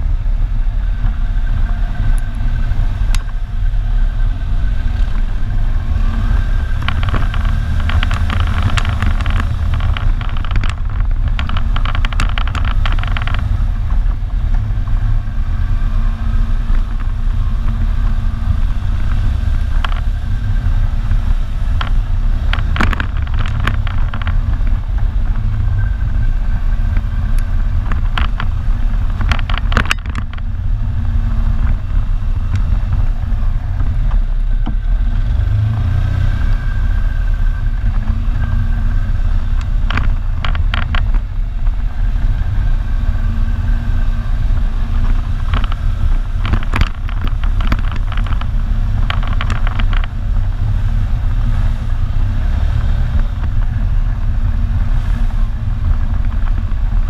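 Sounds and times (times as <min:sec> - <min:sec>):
atv engine running under load: 0:00.0 - 0:57.0.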